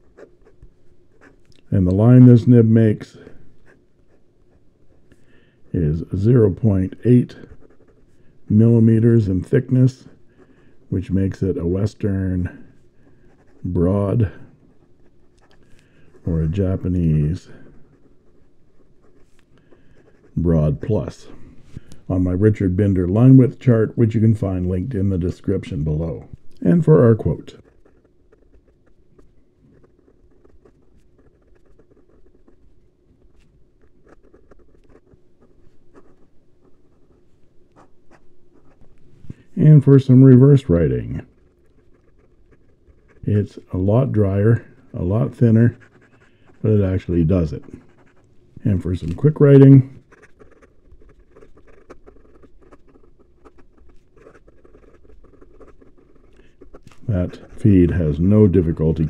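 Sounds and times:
pen scratching on paper: 0.0 - 2.5, 5.8 - 21.2, 22.5 - 59.0.

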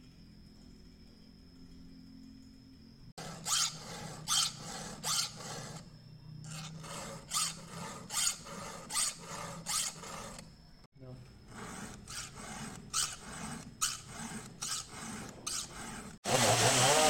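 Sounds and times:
file rasping on saw chain: 3.2 - 5.9, 6.5 - 10.6, 11.4 - 17.0.

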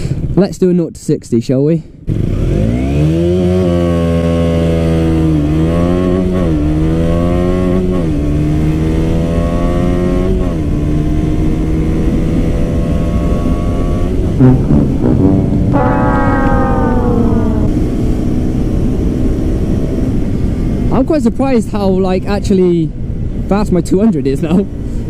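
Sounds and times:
motorcycle engine accelerating: 2.1 - 20.9.

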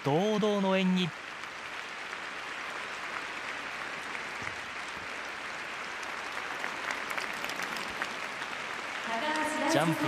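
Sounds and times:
audience applauding: 0.0 - 10.0
single claps: 1.4 - 9.6.

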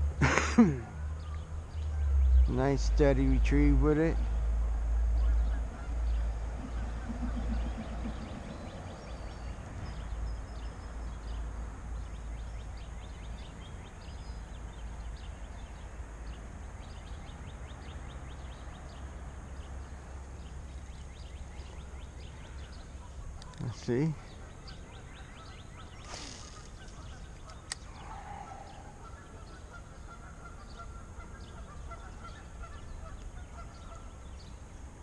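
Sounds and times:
wind buffeting microphone: 6.4 - 10.5.

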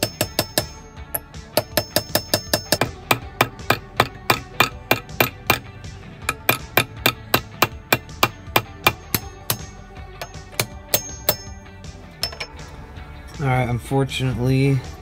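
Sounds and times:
hammer knocking on steel anvil: 0.0 - 11.6.

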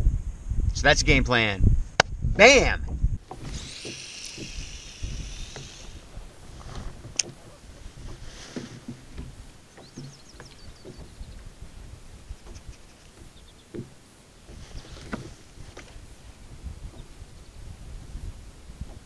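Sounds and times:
gear knocking against kayak: 2.9 - 11.5, 12.4 - 16.0
fishing reel whirring: 3.3 - 8.2.

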